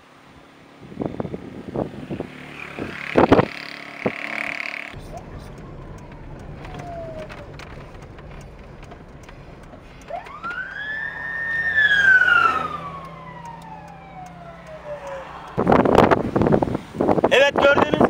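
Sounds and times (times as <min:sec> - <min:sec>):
car rumble: 0:00.6 - 0:18.0
emergency siren wailing: 0:05.0 - 0:16.1.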